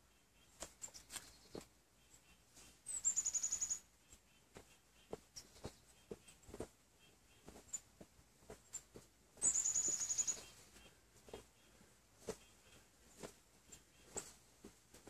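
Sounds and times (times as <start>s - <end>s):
bird trilling: 2.9s - 4.4s, 9.4s - 11.0s.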